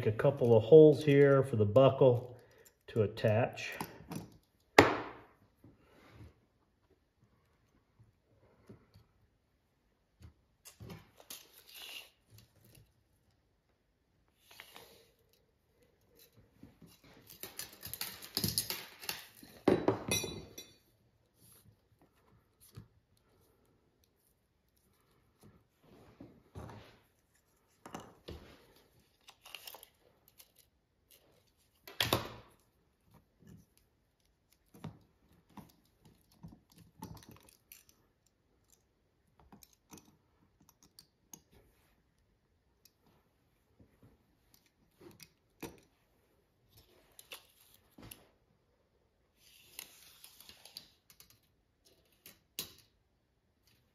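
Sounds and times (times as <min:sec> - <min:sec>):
rustling and clattering tools: 0:14.5 - 0:38.2.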